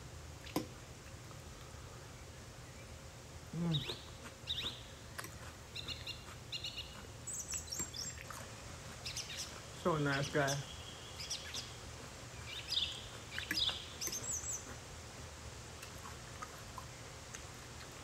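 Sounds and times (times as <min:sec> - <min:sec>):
steady low hiss: 0:00.0 - 0:18.0
small birds chirping: 0:01.7 - 0:14.9.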